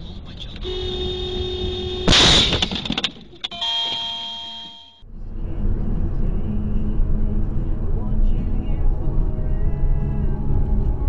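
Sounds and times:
car driving rumble: 0.0 - 4.2, 5.0 - 11.0
car horn: 0.4 - 2.7, 3.4 - 5.0
car crash: 2.0 - 4.9
steady electronic beep: 3.4 - 5.0.

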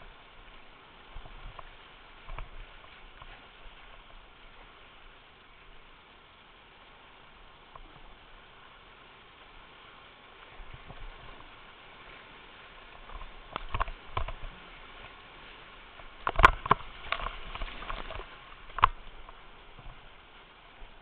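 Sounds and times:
whitewater rushing: 0.0 - 21.0
paddle knocking against kayak: 16.2 - 19.3.

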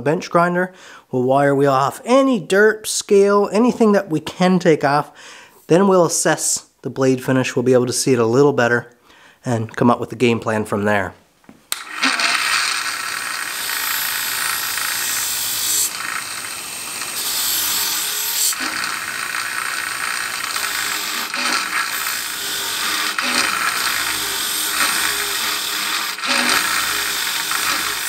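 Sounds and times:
wire wheel scratching metal: 13.5 - 28.0.

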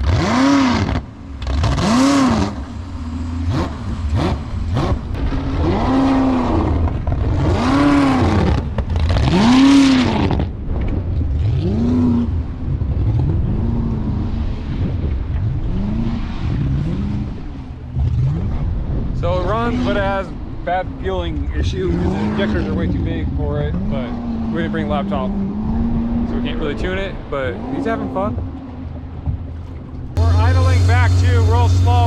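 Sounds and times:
boat engine revving: 0.0 - 10.6, 21.1 - 32.0
water noise: 0.0 - 32.0.

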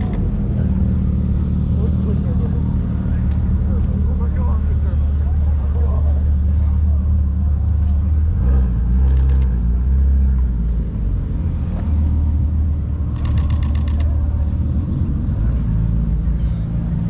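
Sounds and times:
car engine idling: 0.0 - 17.0
camera shutter clicks: 13.2 - 14.1.

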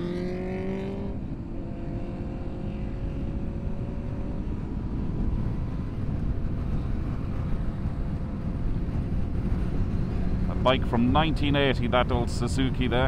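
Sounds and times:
wind and road noise: 0.0 - 13.0.

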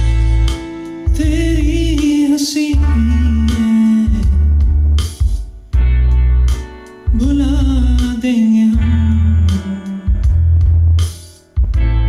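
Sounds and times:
guitar: 0.0 - 12.0
heavy bass notes: 0.0 - 12.0
person singing with vibrato: 1.0 - 4.6, 7.1 - 10.4.

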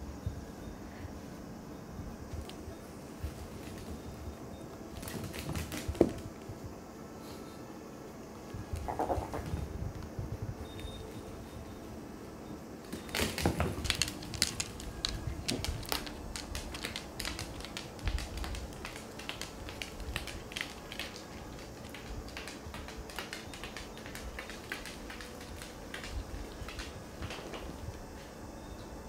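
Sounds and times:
dog claws clicking on hardwood: 13.0 - 27.7.

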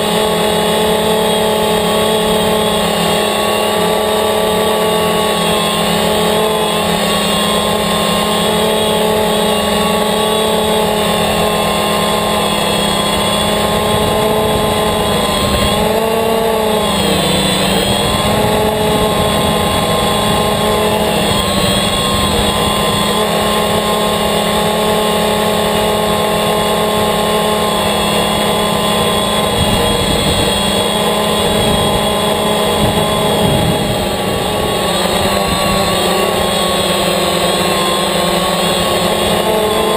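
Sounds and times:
drone propellers buzzing whine: 0.0 - 39.9
wind rumbling on microphone: 11.5 - 24.6, 27.0 - 37.0.

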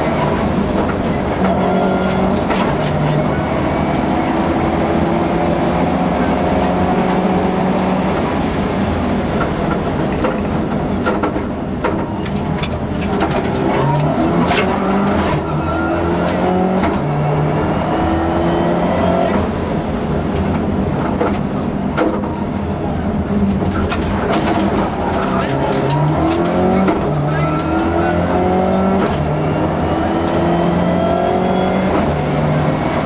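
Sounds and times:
car engine at full throttle: 0.0 - 33.0
sharp clicks and knocks: 9.4 - 17.0, 23.3 - 28.3.

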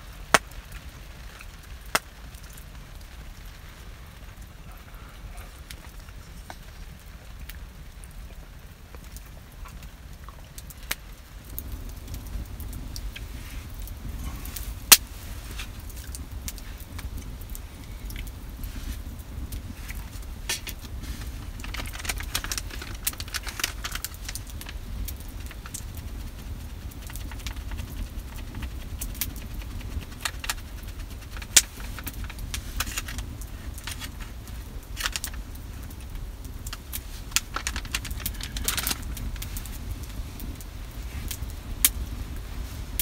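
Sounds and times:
steady low rumble: 0.0 - 43.0
wood fire crackling and popping: 0.0 - 43.0
knife shaving wood: 13.1 - 36.1, 36.7 - 40.2.

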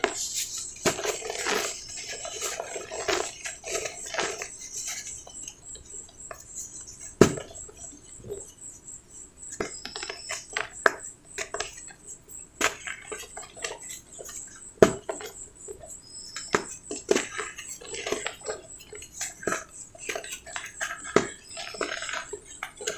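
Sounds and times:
cement lumps crunching by hand: 0.0 - 5.2, 16.3 - 22.9.

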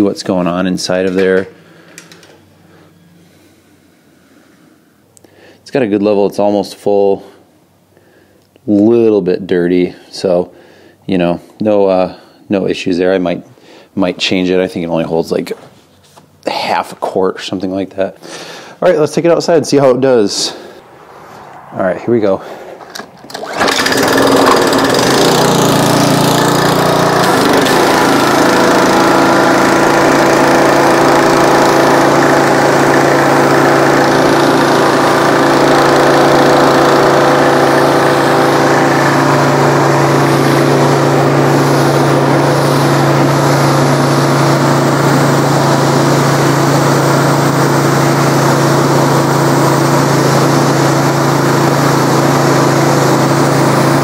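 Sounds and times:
small engine running: 22.4 - 54.0.

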